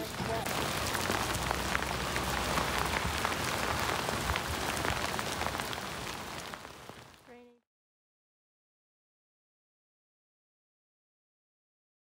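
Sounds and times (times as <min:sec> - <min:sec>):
sharp raindrop hits: 0:00.0 - 0:07.3
rain falling on water: 0:00.0 - 0:07.4.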